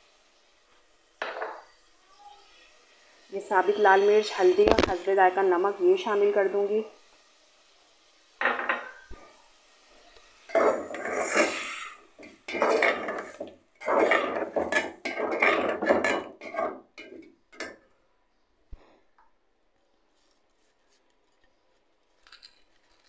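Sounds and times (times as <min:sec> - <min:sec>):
metal spoon scraping pot: 0:10.5 - 0:17.8.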